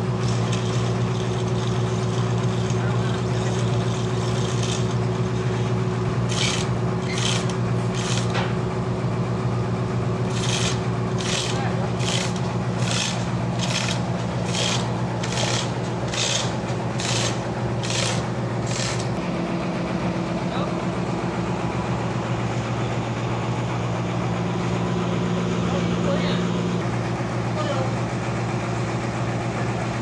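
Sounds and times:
chain hoist rasping clattering: 0.0s - 8.5s, 10.3s - 19.2s
sawmill machinery humming: 0.0s - 30.0s.

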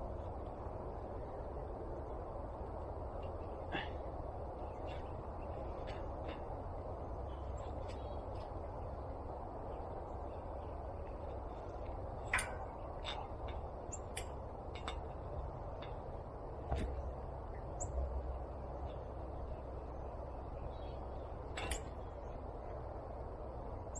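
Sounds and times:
low outdoor background noise: 0.0s - 23.9s.

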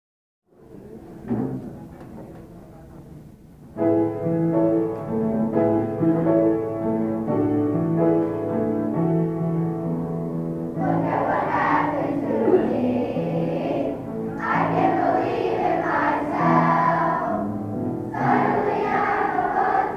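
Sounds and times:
piano: 0.5s - 19.9s
children's choir singing: 10.7s - 19.9s.

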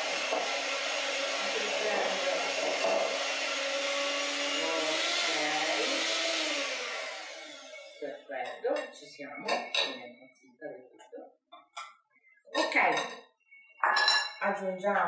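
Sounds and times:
electric hand mixer whisking: 0.0s - 8.1s.

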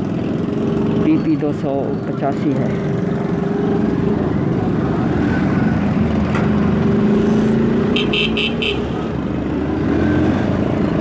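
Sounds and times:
horn beeps: 7.9s - 9.0s.

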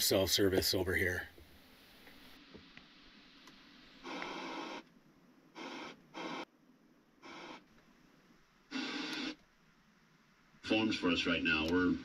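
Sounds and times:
radio static bursts: 1.8s - 4.9s, 5.5s - 6.5s, 7.2s - 7.8s, 8.7s - 9.4s.

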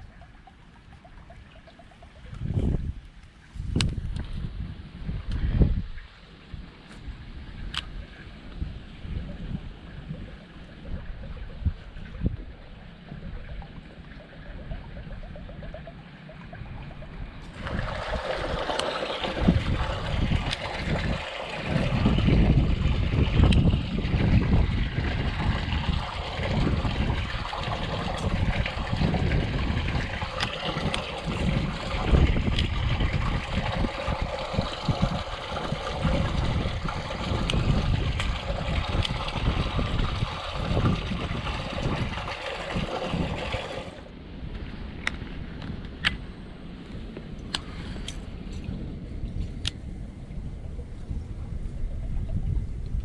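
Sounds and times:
water pouring from drain pipe: 0.0s - 4.2s, 9.0s - 44.1s
wind rumbling on microphone: 0.0s - 53.0s.

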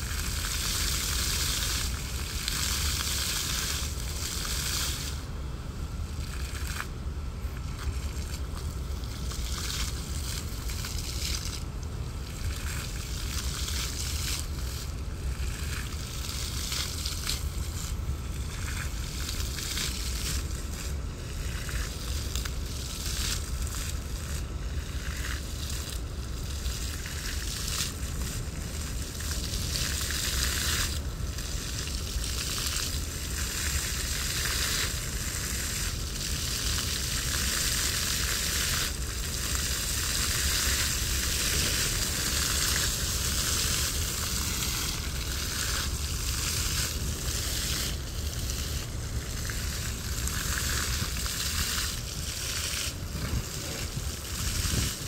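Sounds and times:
fountain water splashing: 0.0s - 55.0s.

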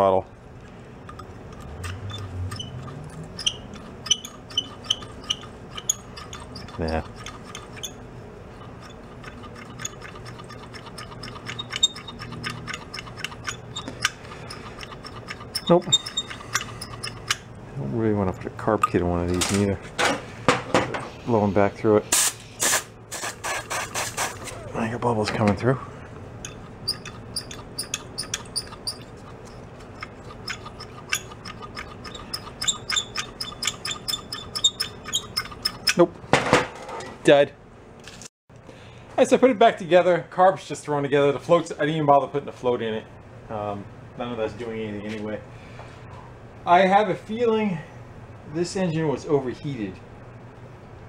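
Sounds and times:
small metal clicks of linkage: 1.1s - 7.9s, 8.6s - 17.4s, 26.4s - 36.0s.

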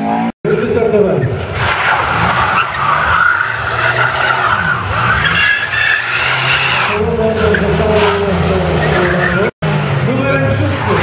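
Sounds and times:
car engine revving hard: 1.4s - 11.0s
tyres squealing: 1.5s - 9.5s.

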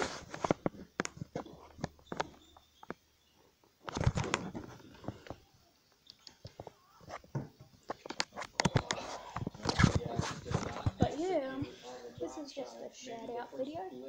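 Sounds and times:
camera handling knocks and rustles: 6.6s - 11.2s.

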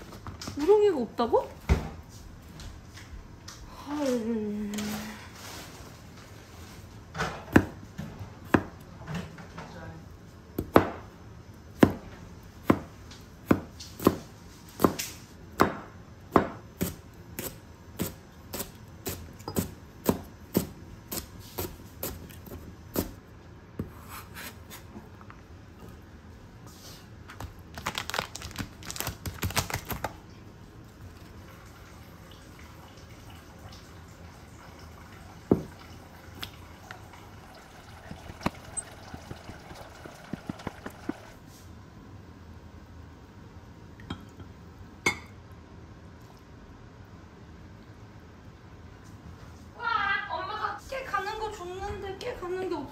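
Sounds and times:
knife scraping board: 23.8s - 24.9s.

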